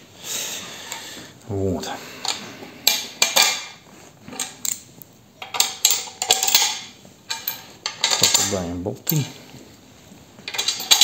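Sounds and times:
metal bolts clinking: 2.3s - 9.4s, 10.5s - 11.0s.

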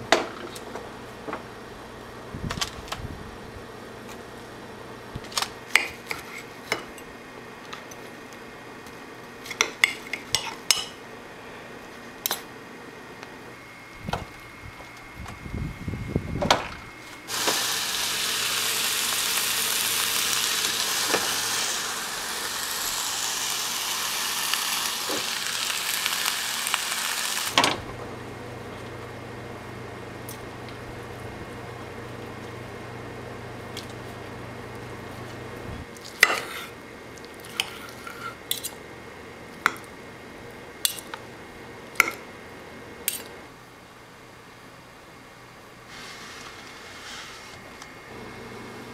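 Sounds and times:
chicken sizzling on grill: 17.3s - 27.8s.

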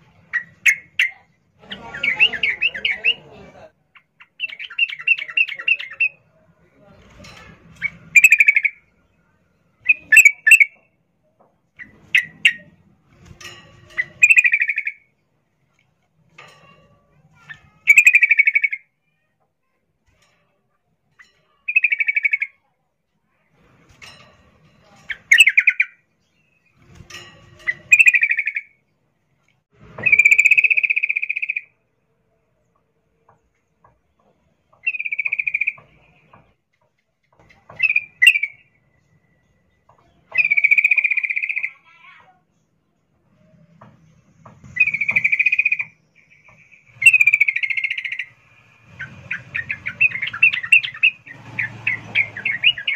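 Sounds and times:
bulbul chattering calls: 7.8s - 8.8s, 44.8s - 52.9s.

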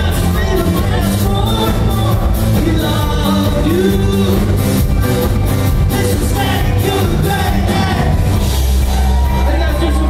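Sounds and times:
person singing lead vocal: 0.0s - 5.0s, 5.7s - 8.4s
live band playing upbeat song: 0.0s - 10.0s.

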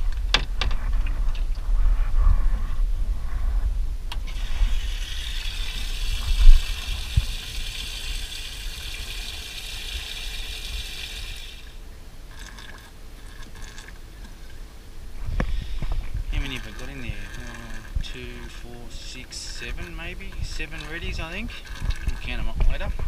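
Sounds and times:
water running from pump: 4.2s - 14.6s, 15.5s - 23.0s.

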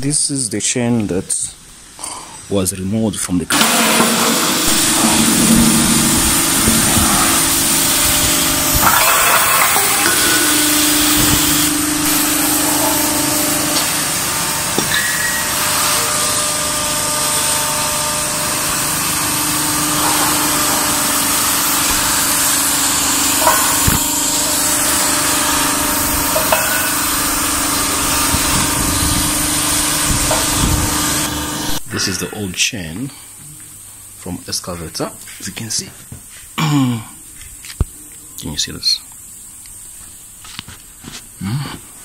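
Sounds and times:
low hum: 3.5s - 31.9s
cutting torch hissing: 3.5s - 32.2s.

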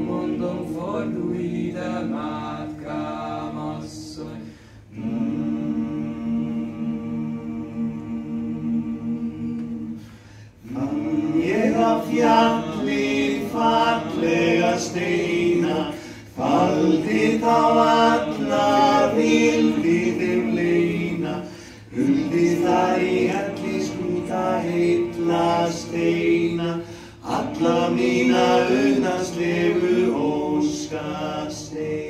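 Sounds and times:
men singing a cappella in harmony: 0.0s - 32.0s.

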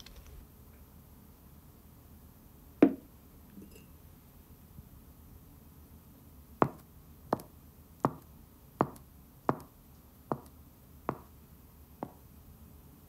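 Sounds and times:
footsteps walking: 0.0s - 0.4s.

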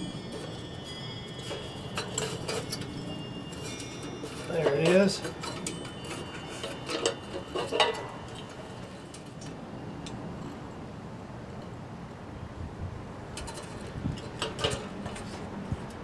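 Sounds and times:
metal lantern clinks and taps: 0.0s - 10.6s, 13.4s - 16.0s
wind chimes ringing: 0.0s - 11.0s.

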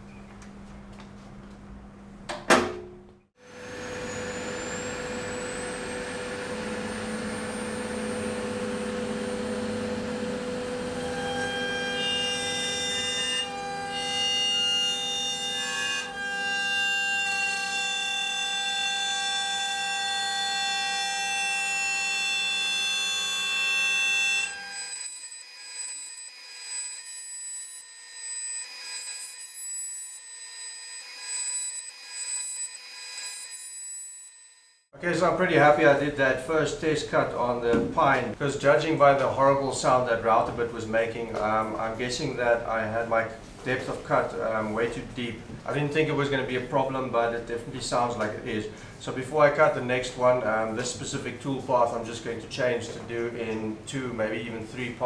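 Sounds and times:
router spindle whine: 3.5s - 11.5s, 21.9s - 34.8s
router bit screeching in wood: 21.9s - 34.8s.

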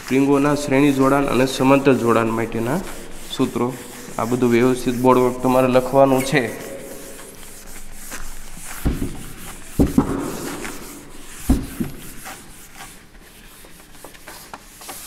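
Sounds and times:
marker scraping on whiteboard: 0.0s - 15.0s
wiping a whiteboard: 0.0s - 15.0s
knocks against board: 8.8s - 9.2s, 9.8s - 10.6s, 11.5s - 12.0s.

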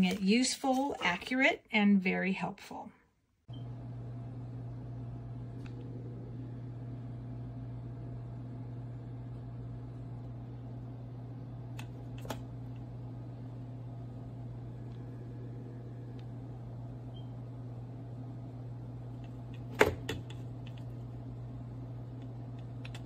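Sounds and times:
low mechanical hum: 3.5s - 23.0s.

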